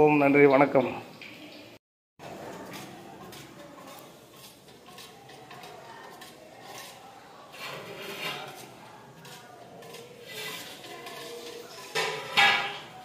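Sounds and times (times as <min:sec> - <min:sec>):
ladles clinking on steel buckets: 0:09.8 - 0:13.0.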